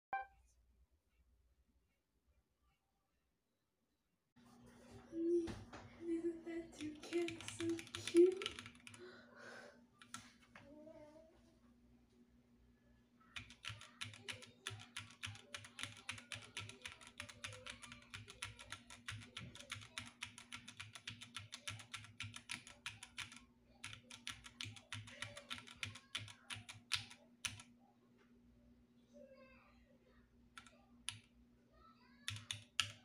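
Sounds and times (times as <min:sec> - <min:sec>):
fast typing key clicks: 0:06.9 - 0:09.0, 0:13.4 - 0:27.6, 0:32.3 - 0:33.0.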